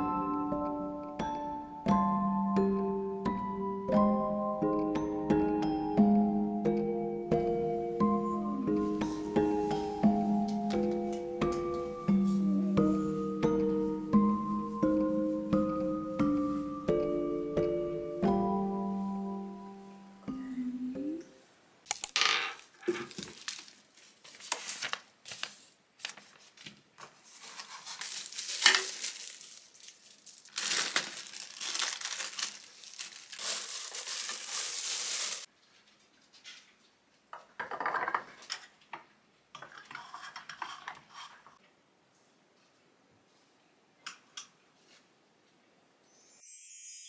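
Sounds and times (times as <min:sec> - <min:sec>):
plastic wrapping crinkling: 0:22.0 - 0:35.9.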